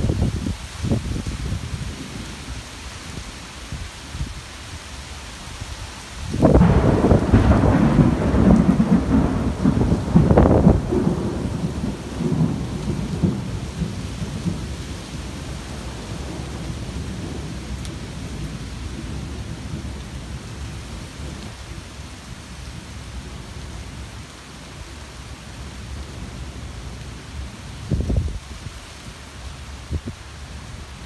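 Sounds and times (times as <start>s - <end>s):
rain falling through leaves: 0.0s - 31.0s
thunder rumbling: 6.3s - 21.7s.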